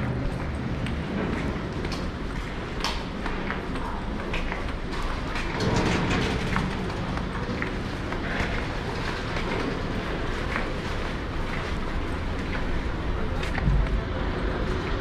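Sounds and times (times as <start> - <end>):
footsteps on stone floor: 0.0 - 5.5, 6.4 - 12.8
metro train rumbling: 0.0 - 15.0.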